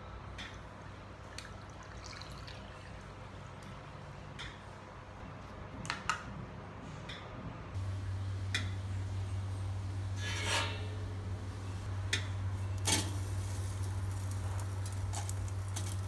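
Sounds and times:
water pouring into glass: 1.6 - 3.0.

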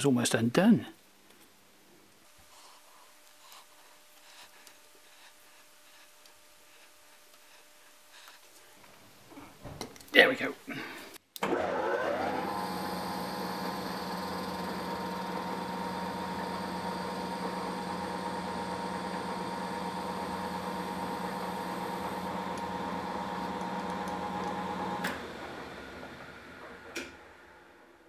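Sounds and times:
lathe motor hum with whine: 11.4 - 27.9.

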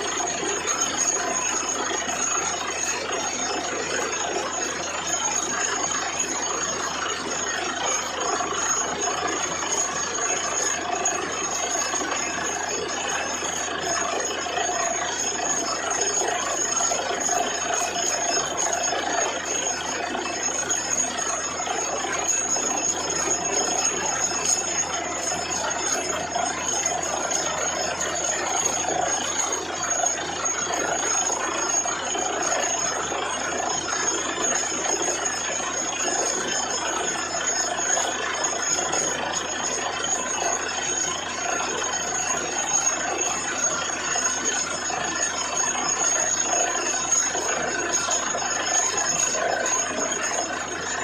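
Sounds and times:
drilling rig running: 0.0 - 51.0
thin high whine: 0.0 - 51.0.

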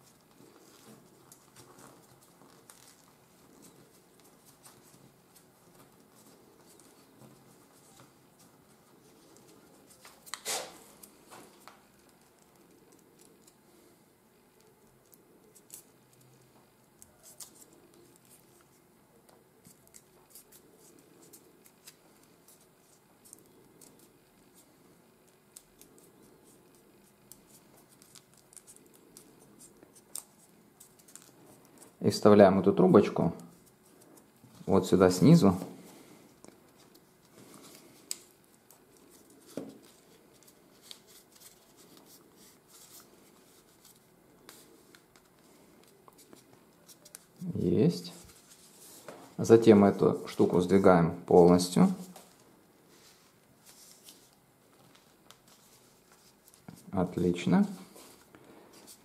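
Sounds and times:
paper rustling and crackling: 0.0 - 13.9, 14.5 - 32.0, 33.3 - 47.4, 52.0 - 56.9.

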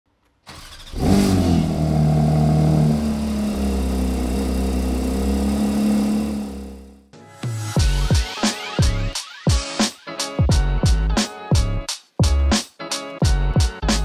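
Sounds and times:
car engine starting and idling: 0.4 - 7.1.

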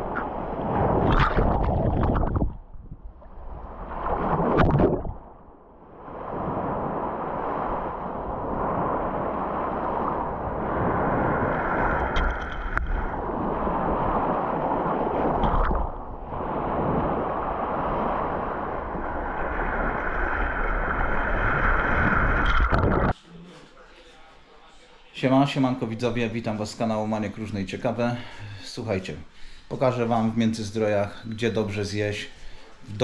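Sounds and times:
wind rumble on microphone: 0.0 - 23.2
small waves breaking on sand: 5.9 - 22.4.

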